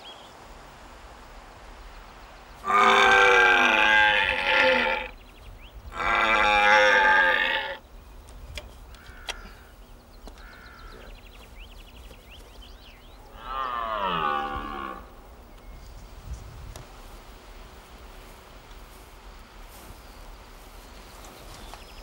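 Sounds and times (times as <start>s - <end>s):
deer call bellowing: 2.6s - 5.2s, 5.9s - 7.8s.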